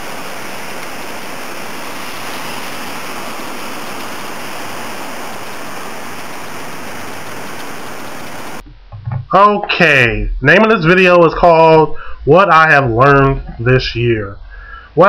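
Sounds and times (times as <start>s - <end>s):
steady rushing noise: 0.0s - 8.7s.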